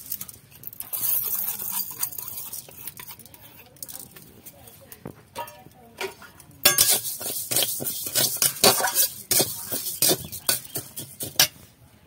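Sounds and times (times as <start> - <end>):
dry lentils rattling: 0.0 - 11.6
metal spatula scraping metal pan: 0.9 - 4.0, 5.4 - 11.6.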